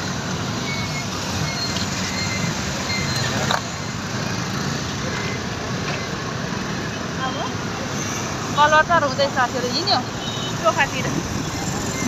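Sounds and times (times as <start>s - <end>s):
city traffic noise: 0.0s - 12.0s.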